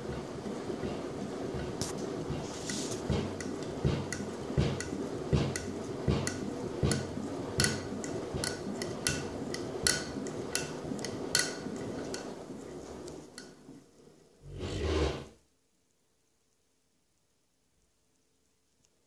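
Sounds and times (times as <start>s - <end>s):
washing machine water sloshing: 0.0s - 13.0s.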